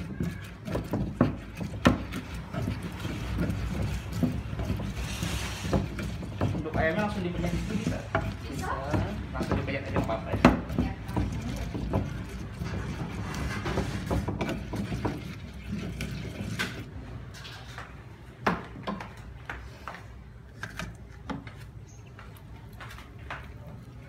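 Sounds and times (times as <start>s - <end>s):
pestle knocks: 0.0s - 5.0s, 5.6s - 15.4s
pestle grinding in clay mortar: 0.0s - 18.8s.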